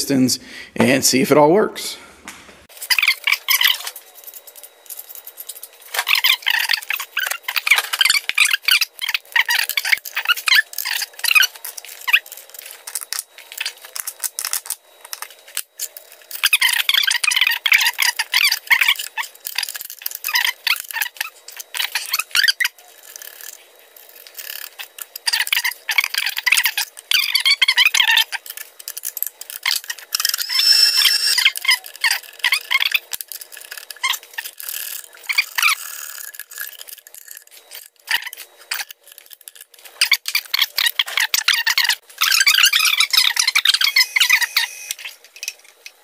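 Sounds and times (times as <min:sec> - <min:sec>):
metal tools clinking and scraping: 0:02.8 - 0:46.0
squeaks: 0:02.9 - 0:04.0, 0:05.6 - 0:23.6, 0:29.5 - 0:39.0, 0:40.0 - 0:45.1
high squeal: 0:30.2 - 0:31.9.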